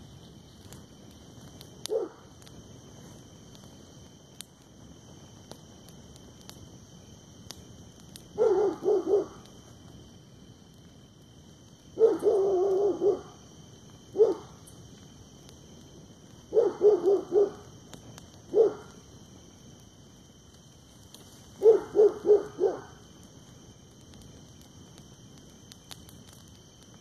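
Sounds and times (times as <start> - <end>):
dog barking: 1.9 - 2.2, 8.4 - 9.4, 12.0 - 13.3, 14.2 - 14.4, 16.5 - 17.6, 18.5 - 18.9, 21.6 - 22.9.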